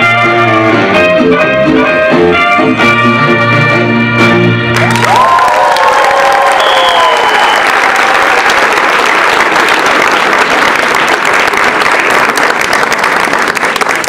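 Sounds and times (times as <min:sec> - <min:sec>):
polka music: 0:00.0 - 0:04.8
audience applauding: 0:04.7 - 0:14.0.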